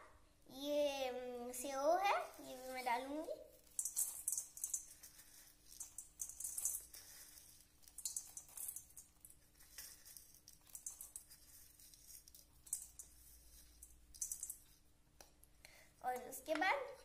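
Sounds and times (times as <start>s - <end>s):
crispy snack sprinkled crackling: 2.1s - 14.9s.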